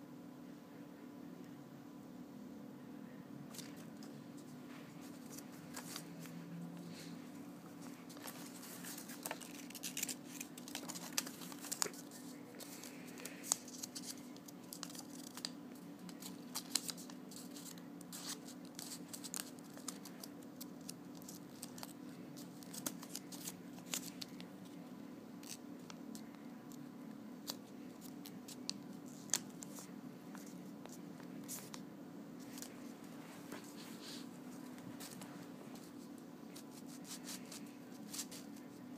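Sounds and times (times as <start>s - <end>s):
steady low hum: 0.0s - 38.9s
paper crinkling and rustling: 3.5s - 24.8s, 27.4s - 31.8s, 32.4s - 38.9s.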